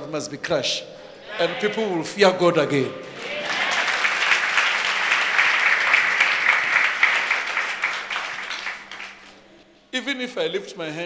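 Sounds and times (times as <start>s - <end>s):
crowd applauding: 3.2s - 9.4s.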